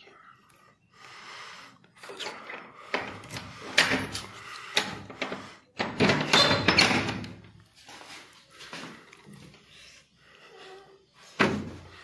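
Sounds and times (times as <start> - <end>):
door rattling and scraping: 2.4 - 7.6.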